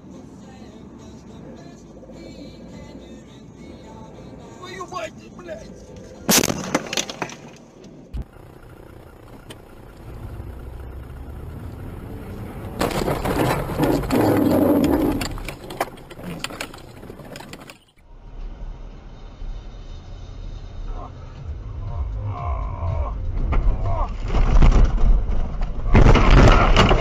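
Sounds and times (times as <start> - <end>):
road noise: 0.0 - 27.0
collision noise: 6.2 - 18.4
car engine: 7.9 - 27.0
car crash impact: 12.6 - 17.8, 23.4 - 27.0.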